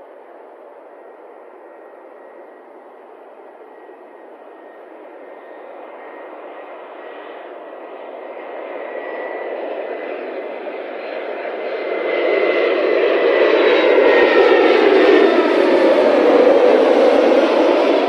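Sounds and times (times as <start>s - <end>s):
thin high whine: 0.0s - 8.0s
jet engines rumbling: 0.0s - 18.0s.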